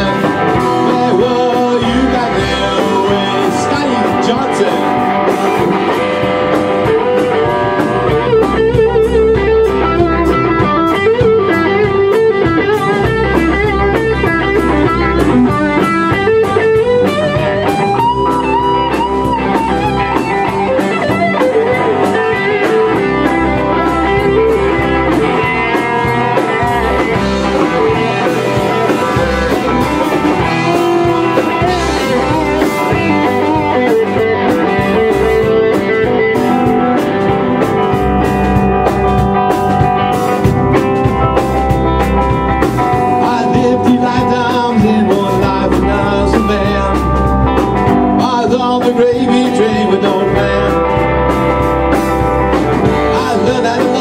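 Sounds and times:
drum kit: 0.0 - 54.0
electric guitars: 0.0 - 54.0.

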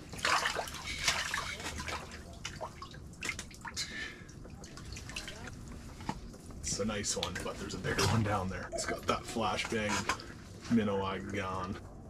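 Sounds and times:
water splashing and sloshing: 0.0 - 12.0
water dripping: 0.1 - 5.8.

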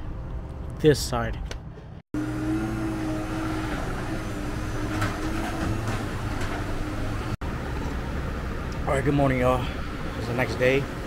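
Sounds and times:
garage door motor humming: 2.2 - 7.4.

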